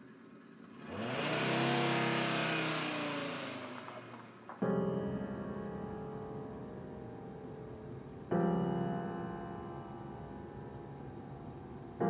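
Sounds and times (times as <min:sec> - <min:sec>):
van engine revving: 0:00.6 - 0:04.6
piano music: 0:04.5 - 0:12.0.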